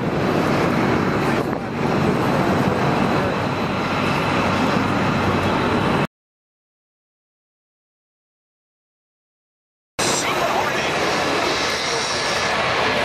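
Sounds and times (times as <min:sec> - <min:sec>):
rumbling outdoor noise: 0:00.0 - 0:06.1, 0:10.0 - 0:13.0.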